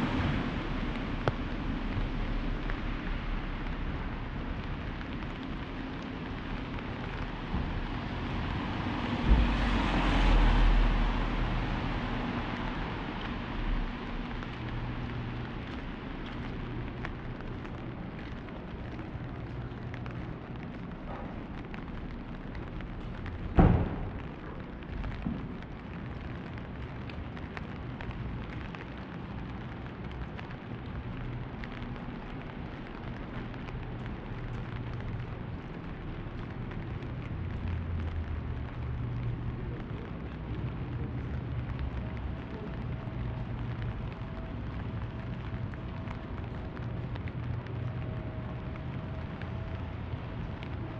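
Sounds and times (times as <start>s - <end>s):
rain hiss: 0.0s - 50.9s
loud thump: 23.5s - 24.2s.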